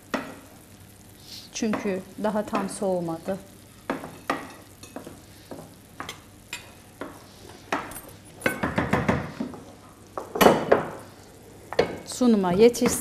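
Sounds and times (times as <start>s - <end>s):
wooden spoon stirring in pan: 1.4s - 13.0s.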